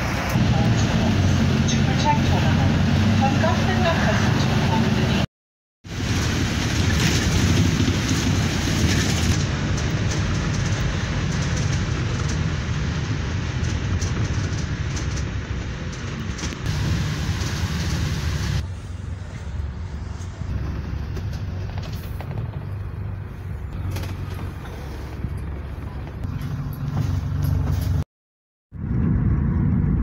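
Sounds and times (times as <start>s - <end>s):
bus engine rumble: 0.0s - 5.3s, 5.9s - 28.0s, 28.8s - 30.0s
tyre and road hiss: 16.7s - 22.3s.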